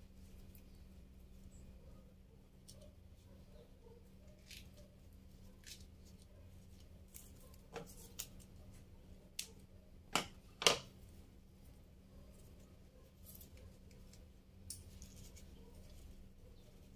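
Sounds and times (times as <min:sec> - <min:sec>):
faint steady hum: 0:00.0 - 0:16.9.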